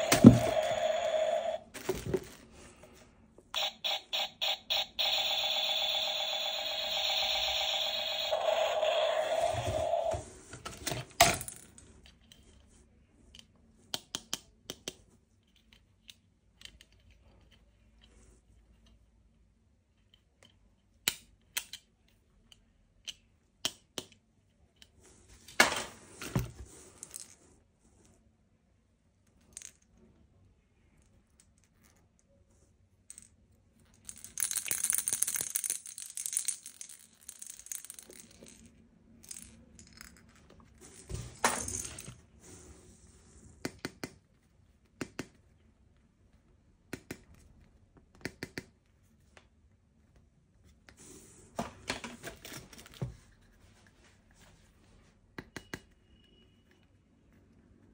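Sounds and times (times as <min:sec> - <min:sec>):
plastic parts clattering: 0:00.0 - 0:02.5
plastic toy parts clicking: 0:13.3 - 0:17.7, 0:20.0 - 0:24.2, 0:33.9 - 0:40.2.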